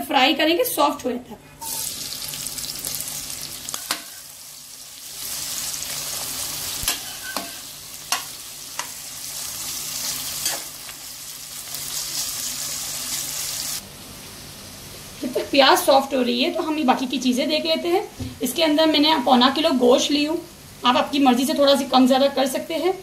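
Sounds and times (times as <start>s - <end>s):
onions sizzling in oil: 1.6s - 23.0s
spoon scraping a pot: 6.9s - 8.9s.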